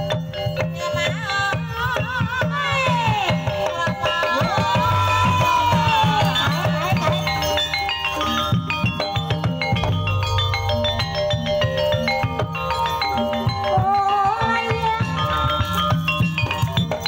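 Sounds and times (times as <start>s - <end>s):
high ornamented melody: 4.2s - 17.0s.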